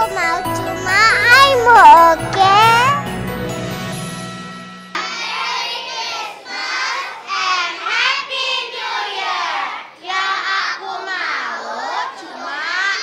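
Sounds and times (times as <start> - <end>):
children singing in chorus: 5.0 - 13.0.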